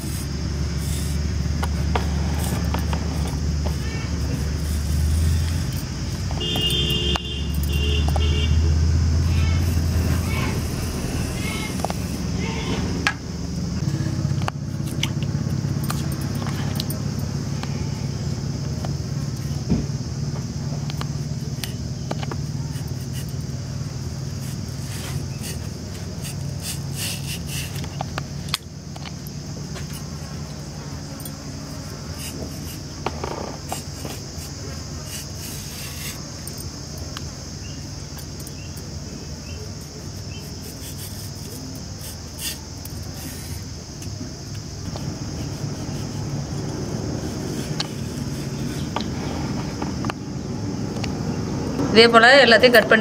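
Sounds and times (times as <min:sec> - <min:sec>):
insect chirring: 0:00.0 - 0:53.0.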